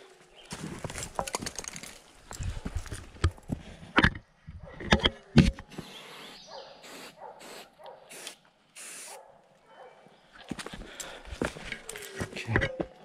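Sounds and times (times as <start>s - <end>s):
footsteps on dry leaves: 0.2s - 1.2s.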